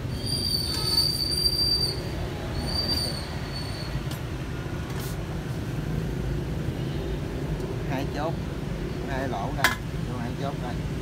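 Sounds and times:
metal-on-metal squeal: 0.0 - 4.0.

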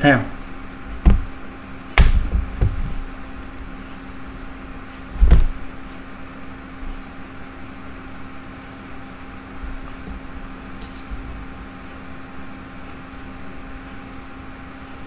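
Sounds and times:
steady low hum: 0.0 - 15.0
dull low thump: 0.9 - 3.2, 5.1 - 5.7.

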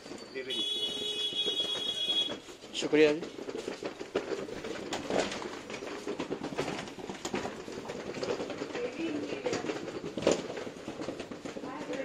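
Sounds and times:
knocks and clatter: 0.0 - 12.0.

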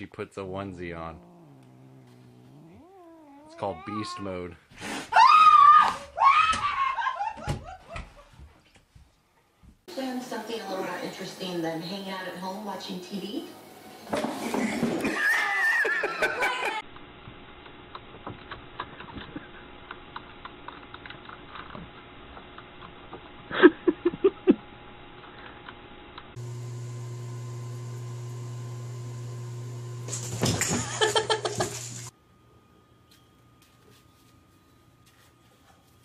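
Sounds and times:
steady low hum: 0.3 - 3.9
person laughing: 14.5 - 16.8, 23.5 - 24.6, 30.7 - 31.8.

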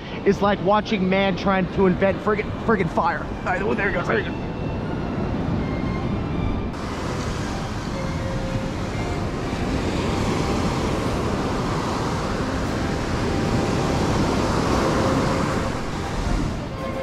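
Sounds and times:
wind rumbling on microphone: 0.0 - 17.0
ocean surf breaking: 6.8 - 17.0.

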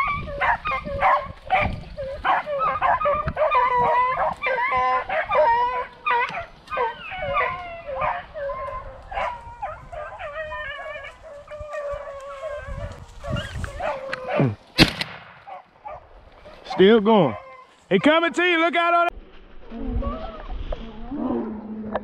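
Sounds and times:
beagles baying: 0.0 - 14.6, 15.4 - 18.6
sharp crack: 14.7 - 15.5.

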